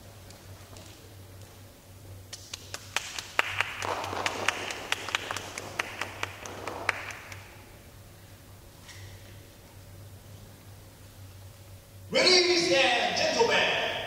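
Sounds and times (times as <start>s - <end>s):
small group applauding: 2.3s - 7.7s.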